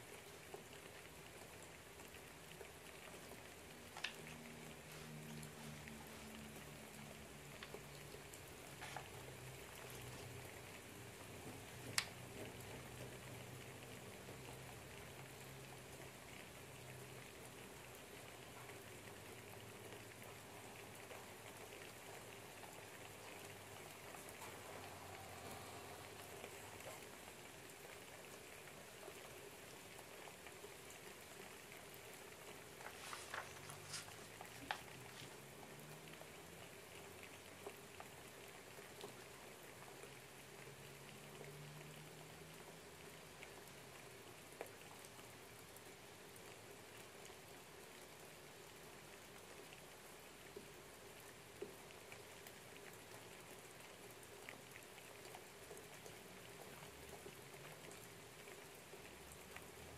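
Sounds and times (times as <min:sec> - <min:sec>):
light rain pattering: 0:00.0 - 0:59.9.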